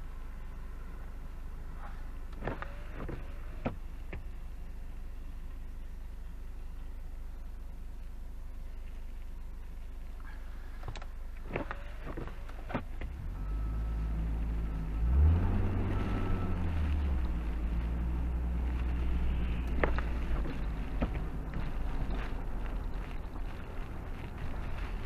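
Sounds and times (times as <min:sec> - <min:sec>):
road noise: 0:00.0 - 0:25.0
car engine accelerating: 0:11.4 - 0:25.0.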